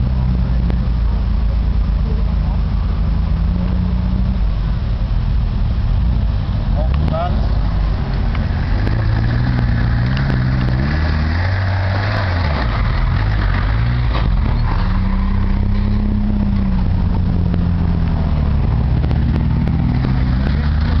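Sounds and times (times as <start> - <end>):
off-road vehicle engine revving: 0.0 - 21.0.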